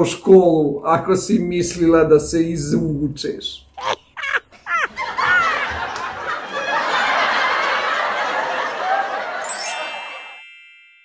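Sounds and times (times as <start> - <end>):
crowd laughing: 3.8 - 10.4
sparkly rising chime glide: 9.4 - 11.0.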